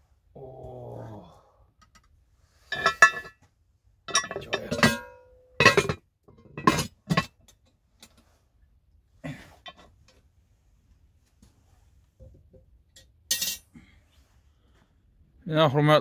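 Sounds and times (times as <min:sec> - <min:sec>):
spoon and lid clanking on pot: 0:04.1 - 0:07.4
wire handle clinking: 0:04.1 - 0:07.6.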